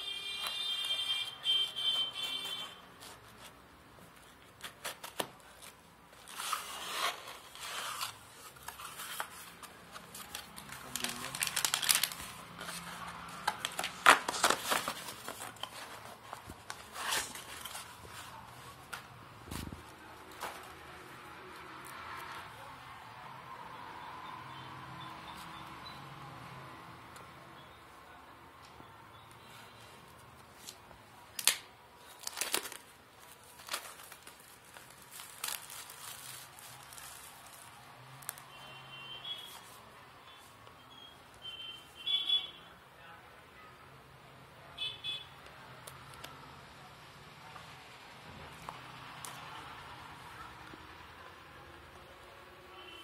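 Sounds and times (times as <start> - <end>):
packaging crackling and crinkling: 0.4 - 21.2, 30.5 - 39.8
cardboard scraping and rustling: 4.2 - 10.8, 11.4 - 20.9.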